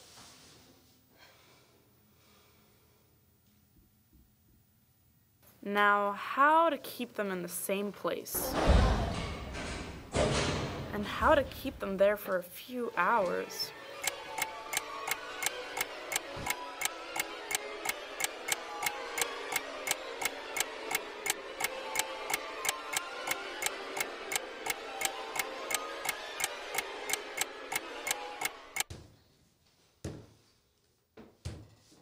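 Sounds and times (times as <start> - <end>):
clock-like ticking: 14.0 - 28.9.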